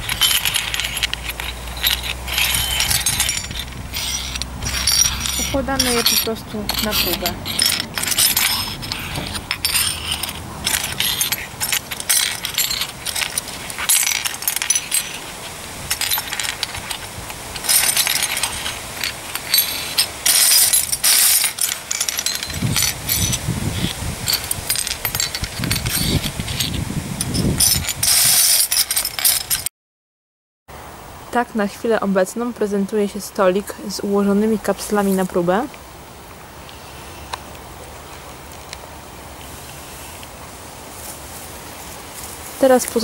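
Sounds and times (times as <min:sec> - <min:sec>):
metal bottle caps clinking: 0:00.0 - 0:29.7.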